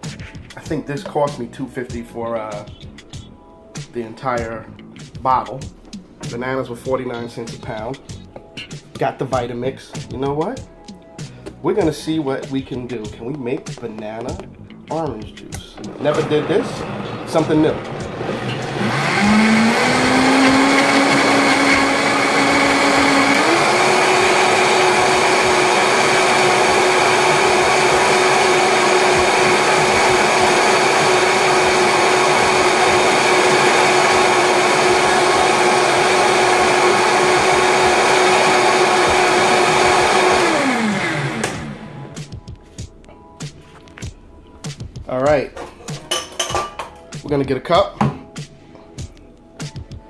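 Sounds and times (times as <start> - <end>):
blender motor whining: 15.8 - 42.2.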